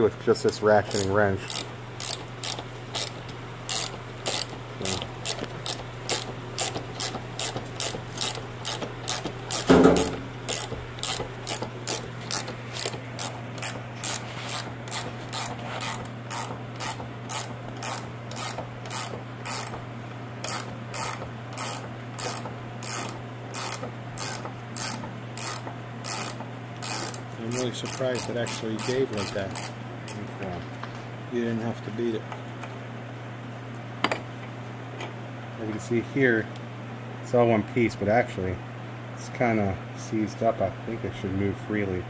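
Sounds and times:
ratcheting wrench clicking: 0:00.9 - 0:19.8, 0:20.4 - 0:29.8
loud knock: 0:09.7 - 0:10.2.

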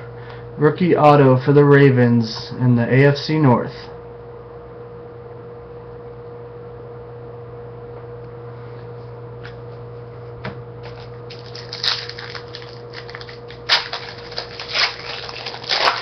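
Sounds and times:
steady hum: 0:00.0 - 0:16.0
wrapper tearing and crinkling: 0:10.9 - 0:16.0.

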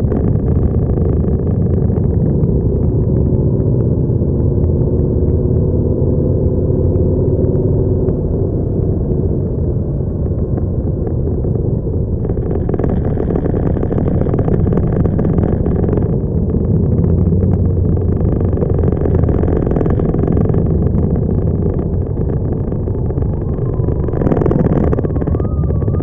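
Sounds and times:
motorcycle engines running: 0:00.0 - 0:26.0
rushing noise: 0:12.2 - 0:26.0.

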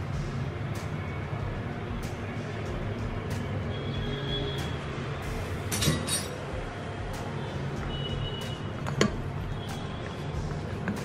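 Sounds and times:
utensil tapping a pot: 0:08.8 - 0:09.2.

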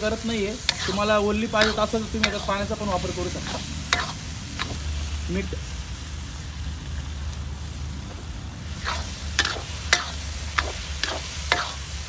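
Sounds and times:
frying sizzle: 0:00.0 - 0:12.0
metal spatula scraping pan: 0:00.3 - 0:04.8, 0:08.8 - 0:11.9.

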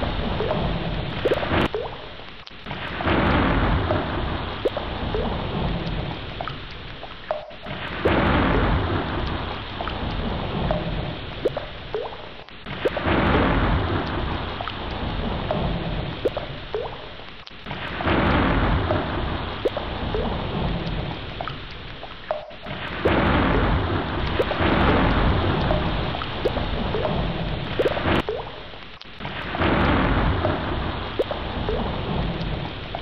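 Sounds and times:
scattered drips: 0:00.0 - 0:33.0
low rumble of thunder: 0:02.7 - 0:06.3, 0:07.6 - 0:11.4, 0:12.7 - 0:16.9, 0:17.7 - 0:21.4, 0:22.6 - 0:28.3, 0:29.3 - 0:33.0
heavy rain hissing: 0:02.7 - 0:33.0.

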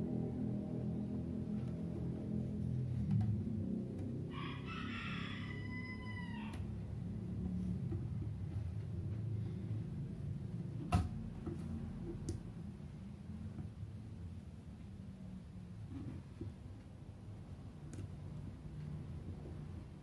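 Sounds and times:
rooster crowing: 0:04.2 - 0:06.9.

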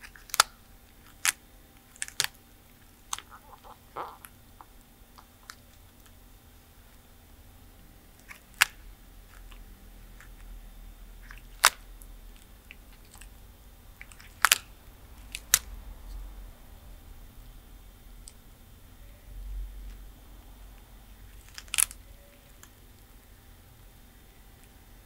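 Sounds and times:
tortoise crunching food: 0:00.0 - 0:06.2, 0:14.0 - 0:16.2, 0:21.2 - 0:22.8.

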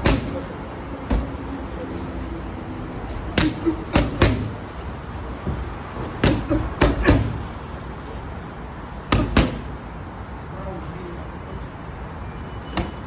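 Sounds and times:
boxing gloves smacking mitts: 0:00.0 - 0:01.4, 0:03.2 - 0:04.6, 0:05.4 - 0:07.5, 0:09.1 - 0:09.8.

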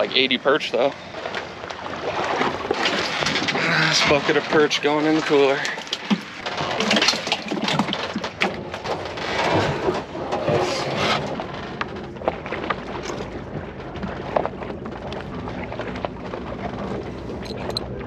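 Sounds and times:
fish and water splashing: 0:00.0 - 0:18.0
knocks and clatters: 0:05.6 - 0:18.0.

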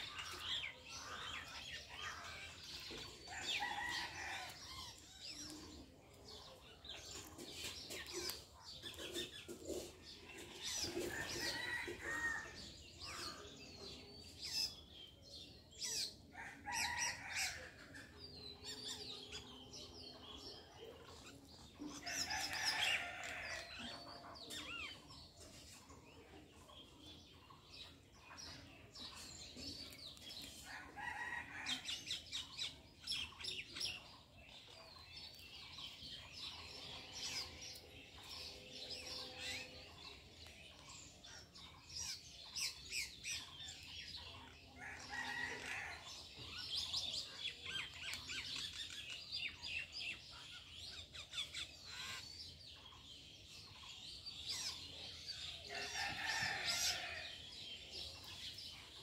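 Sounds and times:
small birds chirping: 0:00.0 - 0:59.0
chickens clucking: 0:05.0 - 0:12.8.

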